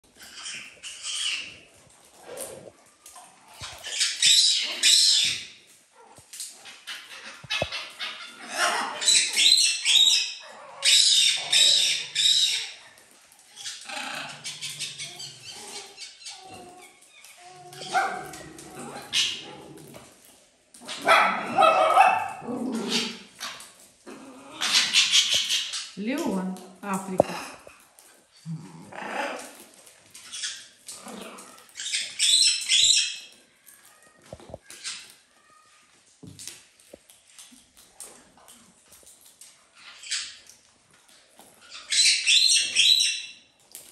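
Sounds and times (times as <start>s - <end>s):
pet animals calling: 6.9s - 12.8s.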